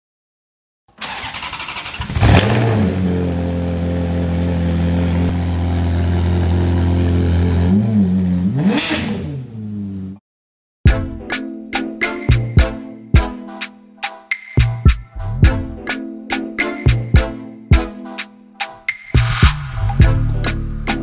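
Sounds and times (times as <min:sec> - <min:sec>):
car engine starting and idling: 0:01.0 - 0:10.0
engine revving blips: 0:01.1 - 0:10.0.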